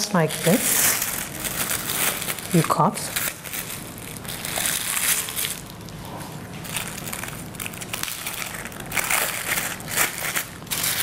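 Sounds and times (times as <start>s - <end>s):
plastic bag crinkling: 0.0s - 11.0s
scissors cutting plastic: 7.2s - 11.0s.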